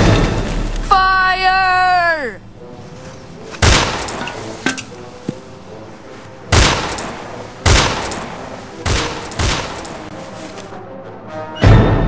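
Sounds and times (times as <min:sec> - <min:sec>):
rifle shots: 0:03.6 - 0:04.2, 0:06.5 - 0:09.9.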